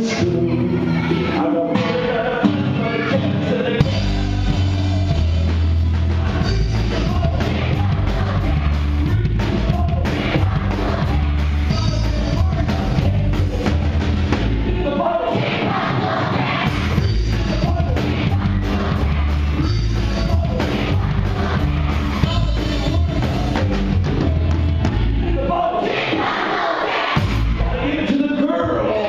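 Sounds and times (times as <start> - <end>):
bass: 0.0 - 26.4, 27.2 - 29.0
drums: 0.0 - 29.0
person singing: 6.2 - 13.9.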